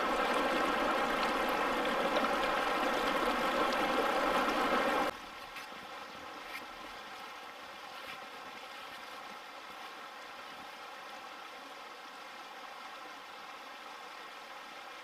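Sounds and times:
river flowing: 0.0 - 15.0.

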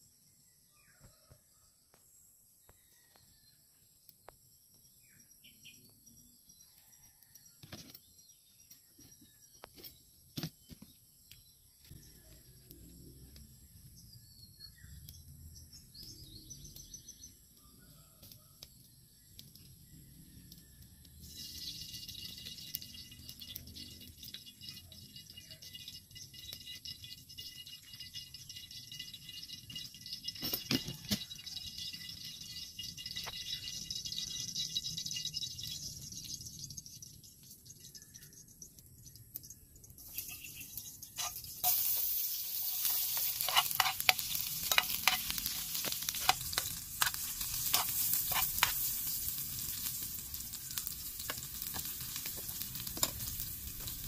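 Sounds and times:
food sizzling in a pan: 21.2 - 37.2, 39.9 - 54.0
spoon scraping a pan: 40.0 - 50.0.

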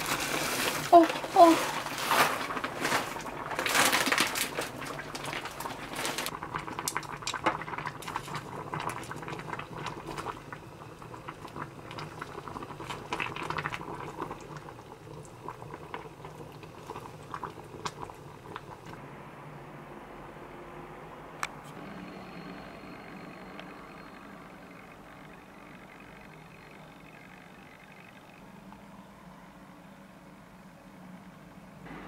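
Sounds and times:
sauce bubbling and popping: 3.2 - 19.0.

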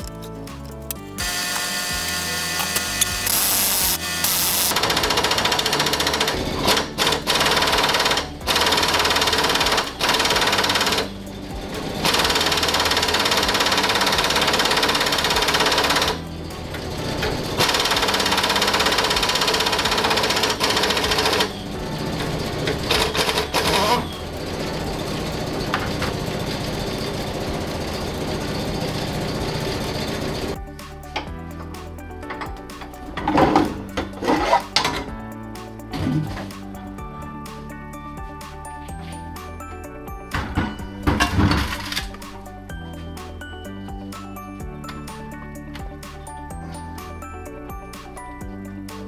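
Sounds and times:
pneumatic impact wrench hammering: 1.2 - 11.1, 12.0 - 16.2, 16.8 - 24.2.

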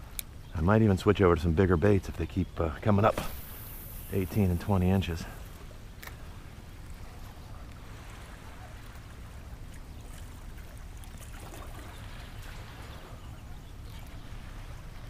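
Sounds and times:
water lapping against dock: 0.0 - 15.0.

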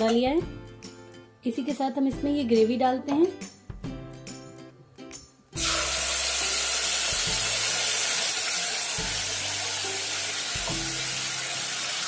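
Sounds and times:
sauce sizzling in hot oil: 5.6 - 12.0.

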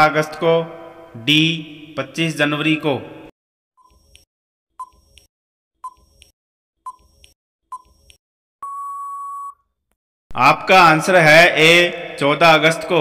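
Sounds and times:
ticking countdown beeps: 6.9 - 9.6.

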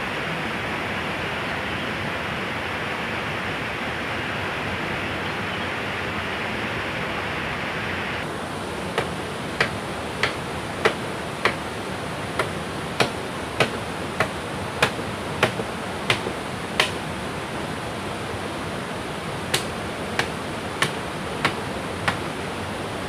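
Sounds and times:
river water rushing: 0.0 - 23.0
blade chopping wood: 9.0 - 11.6, 12.4 - 17.0, 19.5 - 22.2.

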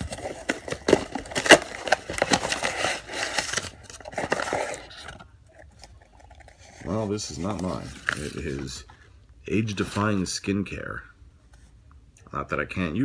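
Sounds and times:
packaging crinkling: 0.0 - 8.9.

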